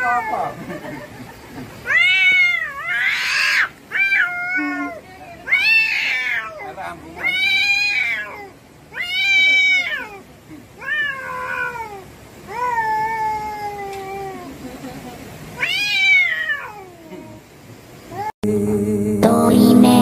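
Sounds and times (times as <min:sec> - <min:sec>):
cats yowling: 0:00.0 - 0:00.8, 0:01.8 - 0:14.6, 0:15.6 - 0:17.4.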